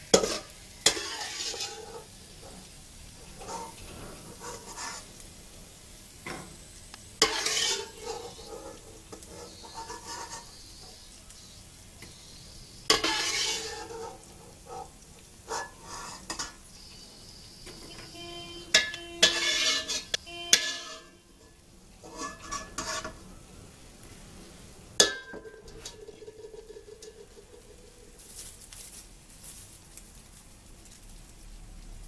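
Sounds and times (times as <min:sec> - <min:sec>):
utensil scraping a pan: 0:00.1 - 0:05.2, 0:07.2 - 0:11.1, 0:12.8 - 0:16.7, 0:17.7 - 0:23.3.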